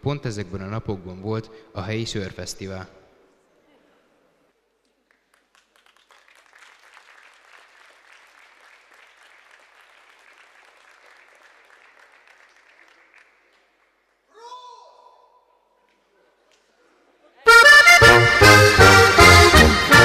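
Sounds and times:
faint audience applause: 0:04.8 - 0:14.3.

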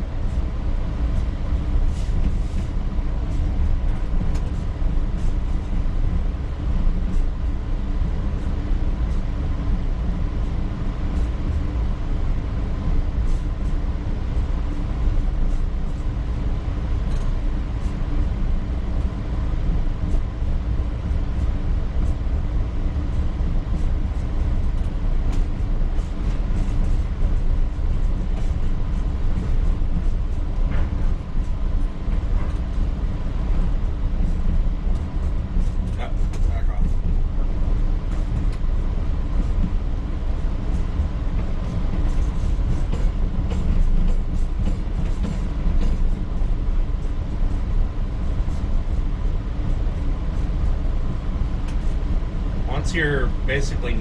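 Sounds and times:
train wheels rumbling: 0:00.0 - 0:54.0
rail clicks and knocks: 0:03.3 - 0:05.9, 0:23.2 - 0:39.8, 0:40.4 - 0:52.0.

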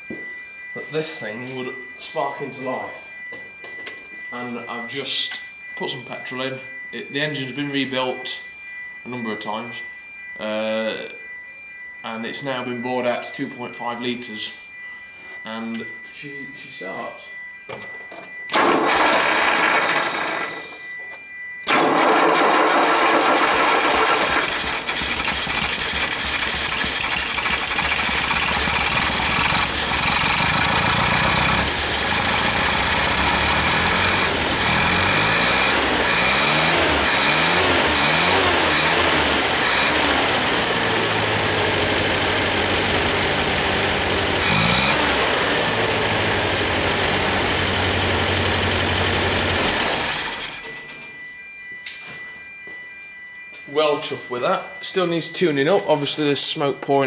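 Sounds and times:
engine starting and running: 0:18.5 - 0:20.8, 0:21.7 - 0:51.0.

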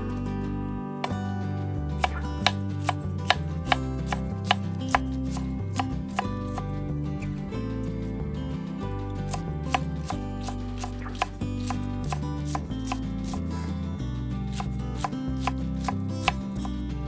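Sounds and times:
soft background music: 0:00.0 - 0:17.0
knife chopping on wooden board: 0:02.0 - 0:06.7, 0:09.3 - 0:13.5, 0:14.5 - 0:16.7.

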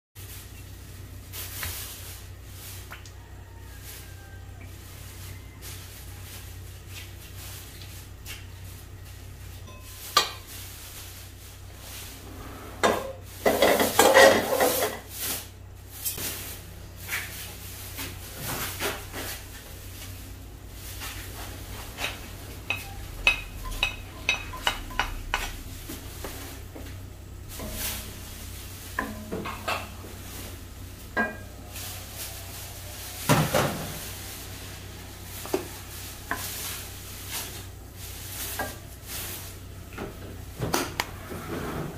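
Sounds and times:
light sizzle: 0:00.2 - 0:41.2
steady low hum: 0:03.7 - 0:41.9
wooden spatula scraping wok: 0:08.8 - 0:39.7, 0:40.3 - 0:41.9.

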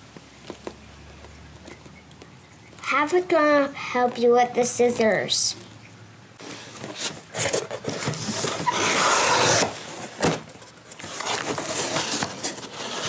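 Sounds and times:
cardboard flaps scraping: 0:06.4 - 0:13.0
packing tape ripping: 0:06.9 - 0:10.2.

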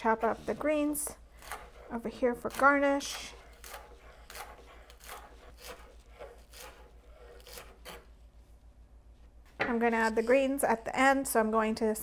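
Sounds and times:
knife chopping on cutting board: 0:02.5 - 0:08.0.

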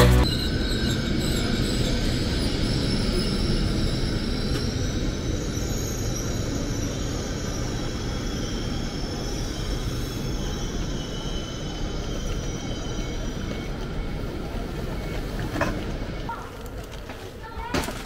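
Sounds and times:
train wheels rumbling on rail: 0:00.0 - 0:18.0.

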